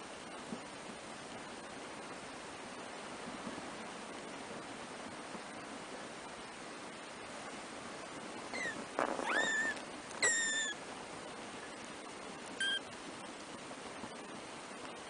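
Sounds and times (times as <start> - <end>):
steady background hiss: 0.0 - 15.0
kittens mewing: 8.6 - 10.8.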